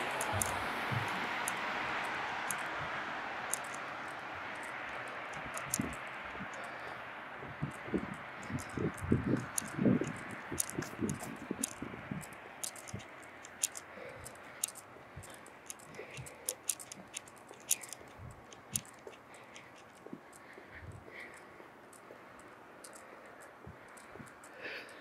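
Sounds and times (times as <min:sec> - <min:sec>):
soft low thumps: 0:00.0 - 0:01.5
distant traffic hiss: 0:00.0 - 0:25.0
sharp clicks: 0:00.0 - 0:25.0.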